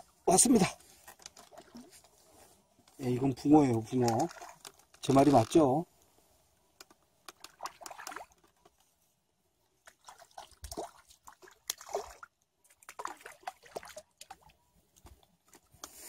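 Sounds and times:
water dripping: 0:06.8 - 0:08.7
fish splashing in water: 0:07.4 - 0:08.6, 0:09.8 - 0:14.5.

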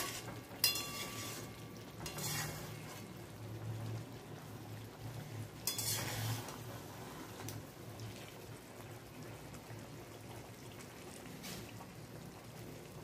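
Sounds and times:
metal spatula scraping: 0:00.0 - 0:03.2, 0:05.6 - 0:06.7
faint curry sizzling: 0:00.0 - 0:13.0.

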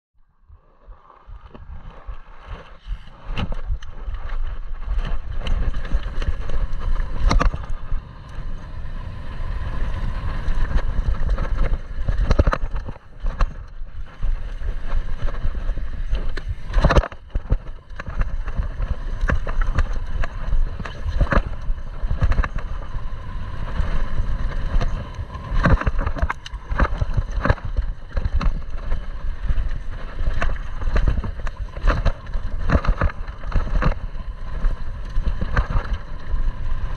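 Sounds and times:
wind on microphone: 0:00.4 - 0:36.9
bike tyres on dirt: 0:00.6 - 0:36.9
bike knocking on rocks: 0:05.0 - 0:07.9, 0:10.7 - 0:13.8, 0:16.3 - 0:23.1, 0:23.8 - 0:36.9.

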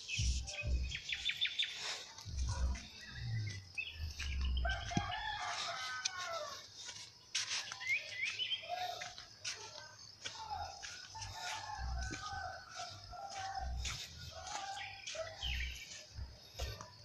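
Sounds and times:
small birds chirping: 0:00.0 - 0:17.0
rooster crowing: 0:04.5 - 0:06.7, 0:10.6 - 0:15.9.

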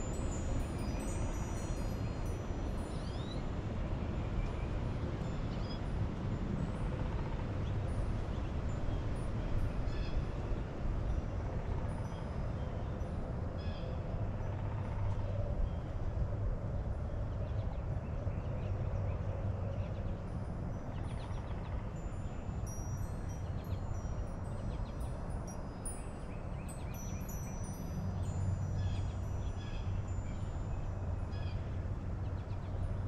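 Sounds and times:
songbirds chirping: 0:20.9 - 0:33.0.

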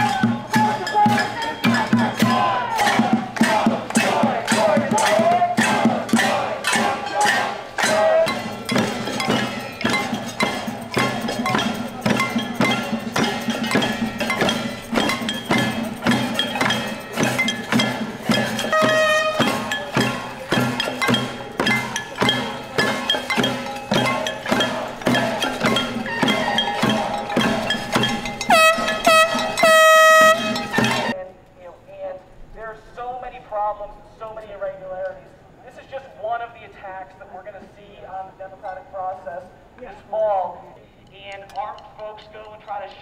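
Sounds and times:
pots and pans clanging: 0:08.3 - 0:31.2
horn blast: 0:18.2 - 0:20.7, 0:24.9 - 0:31.2.

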